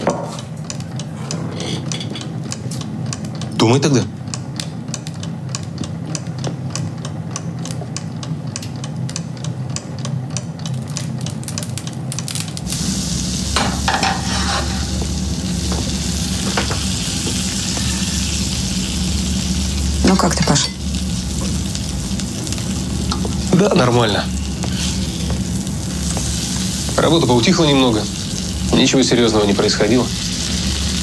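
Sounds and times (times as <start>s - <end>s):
food frying in a pan: 11.7s - 31.0s.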